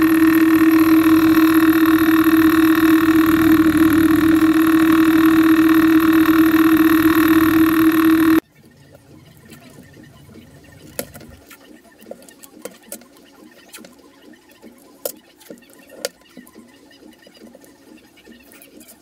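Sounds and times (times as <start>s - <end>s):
drill press humming: 0.0s - 8.4s.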